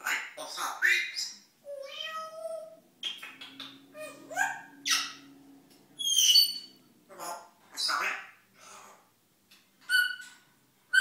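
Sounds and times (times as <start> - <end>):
parrot squeaks clicks and chirps: 9.8 - 10.4.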